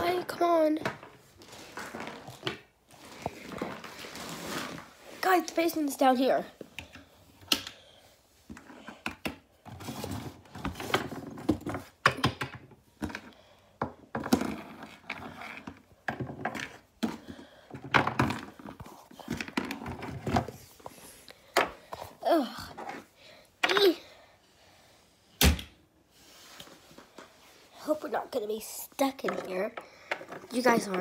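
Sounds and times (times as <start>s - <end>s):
plastic figures thunking on wood: 16.0s - 20.7s.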